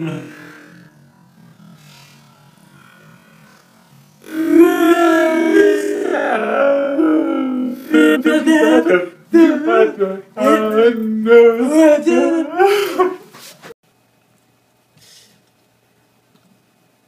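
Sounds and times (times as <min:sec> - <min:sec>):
voices singing lively song: 0:04.2 - 0:13.3.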